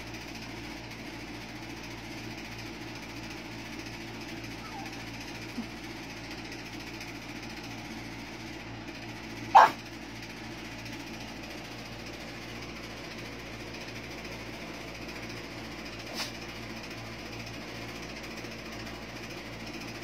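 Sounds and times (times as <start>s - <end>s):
steady background hum: 0.0s - 20.0s
dog barking: 4.6s - 5.0s, 9.5s - 9.8s.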